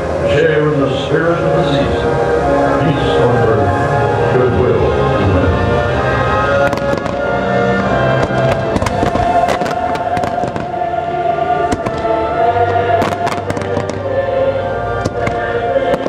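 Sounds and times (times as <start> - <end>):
loud show music: 0.0 - 16.0
fireworks cracking and popping: 6.6 - 7.3, 8.2 - 10.8, 11.7 - 12.1, 12.7 - 14.1, 15.0 - 16.0.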